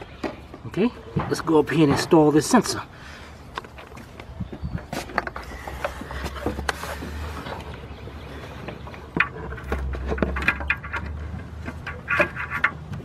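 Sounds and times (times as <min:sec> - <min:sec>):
small clicks and scrapes: 0:04.8 - 0:13.0.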